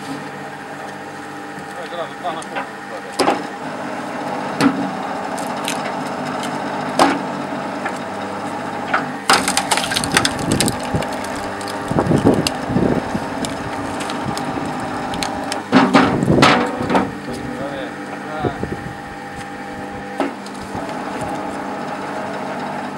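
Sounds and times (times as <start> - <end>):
log splitter motor hum: 0.0 - 22.9
log cracking apart: 5.3 - 6.7, 9.3 - 16.4
wood creaking and crackling: 9.3 - 16.5.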